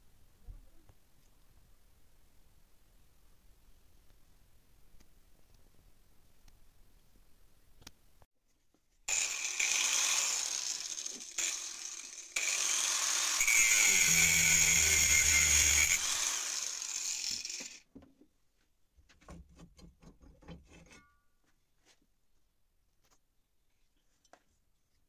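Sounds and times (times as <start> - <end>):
angle grinder cutting metal: 9.1 - 17.8.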